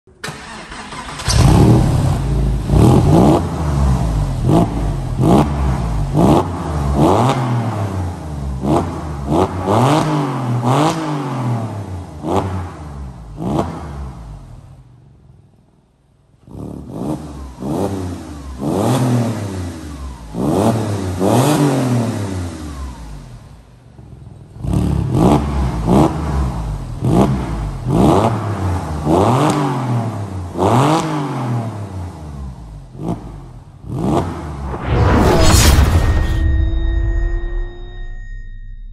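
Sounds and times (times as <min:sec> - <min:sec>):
car engine revving: 0:00.2 - 0:14.4, 0:24.5 - 0:36.4.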